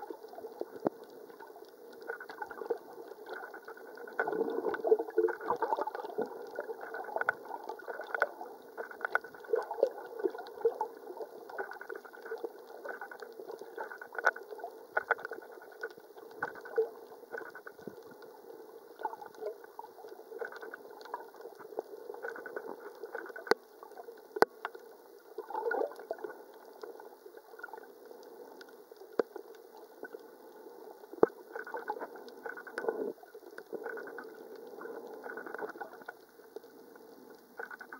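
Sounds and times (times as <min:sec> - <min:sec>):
muffled underwater gurgling: 0:00.0 - 0:24.6, 0:25.2 - 0:37.9.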